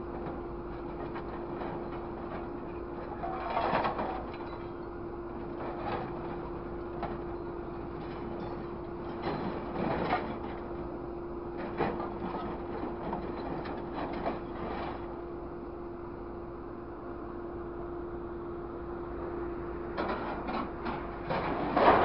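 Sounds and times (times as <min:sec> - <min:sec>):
load of scrap dropping: 0:20.0 - 0:22.0
scrap metal clanking: 0:20.0 - 0:22.0.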